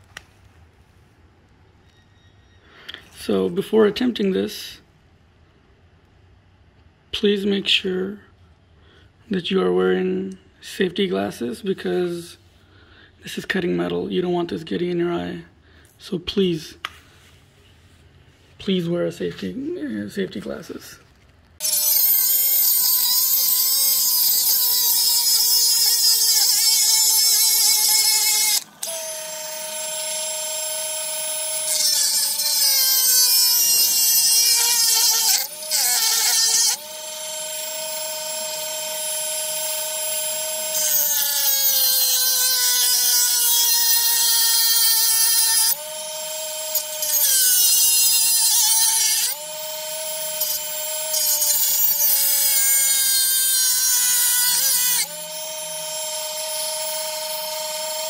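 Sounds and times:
rotary tool cutting metal pipe: 0:21.6 - 0:58.0.

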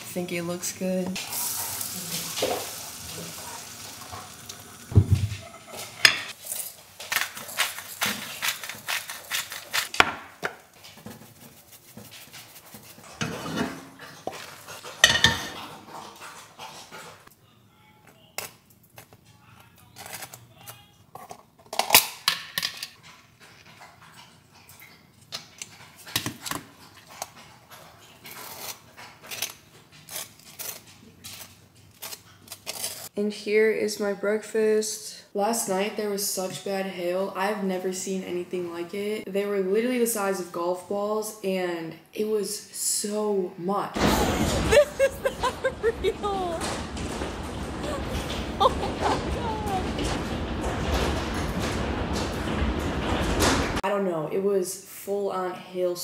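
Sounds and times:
spatula scraping and knocking pan: 0:01.0 - 0:06.4, 0:07.1 - 0:15.9
eggs sizzling in frying pan: 0:01.1 - 0:08.1
dishes and utensils clinking: 0:04.9 - 0:07.2, 0:13.0 - 0:16.0.

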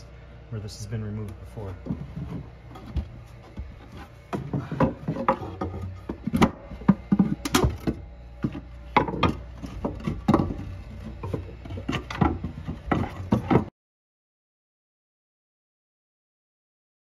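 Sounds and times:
wood knocking and creaking: 0:01.7 - 0:13.7.

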